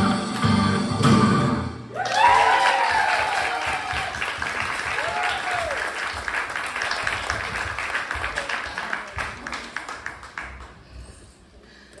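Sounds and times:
small audience applauding: 1.9 - 11.0.

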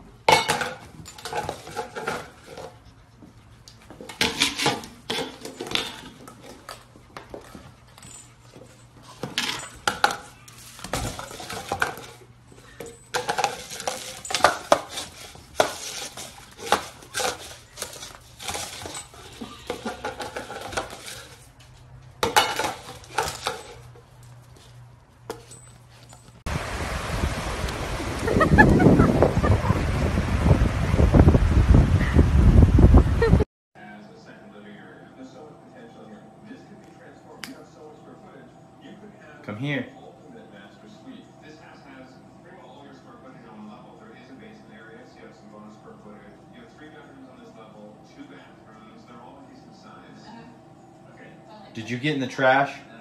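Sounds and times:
metal bowl clattering on tile: 0.3 - 2.7, 4.0 - 6.8, 7.4 - 21.5, 22.2 - 24.0.

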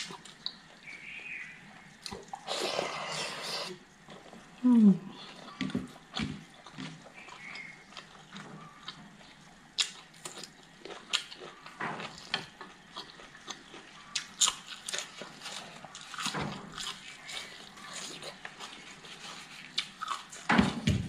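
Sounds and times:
wet chewing and lip smacks: 5.3 - 20.5.

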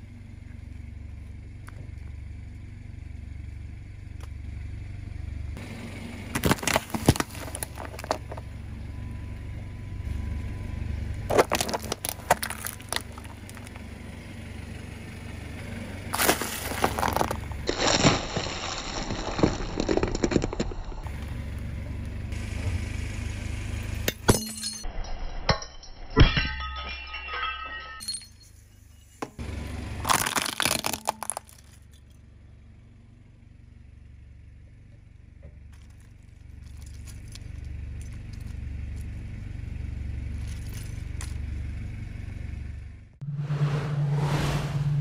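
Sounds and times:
car engine idling: 0.0 - 24.8, 31.1 - 43.3
car tyre crushing brittle objects: 6.2 - 8.8, 11.2 - 14.2, 16.1 - 22.2, 29.2 - 32.2, 35.6 - 41.9.

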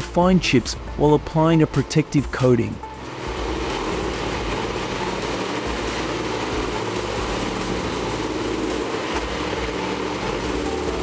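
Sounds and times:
wood grinder engine running: 2.8 - 11.0
logs grinding: 3.0 - 11.0.

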